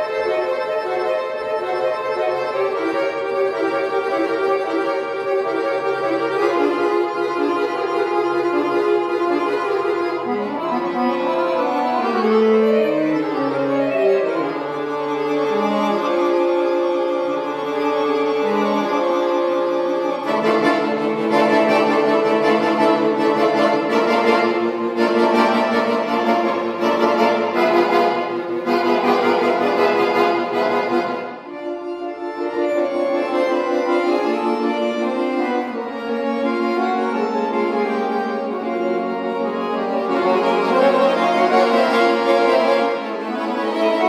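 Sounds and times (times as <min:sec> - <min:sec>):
accordion playing chords: 0:00.0 - 0:44.0.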